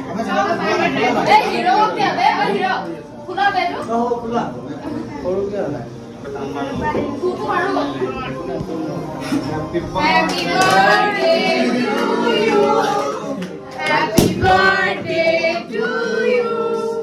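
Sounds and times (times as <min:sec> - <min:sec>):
group of people singing: 0:09.2 - 0:17.0
sharp crack: 0:14.2 - 0:14.6.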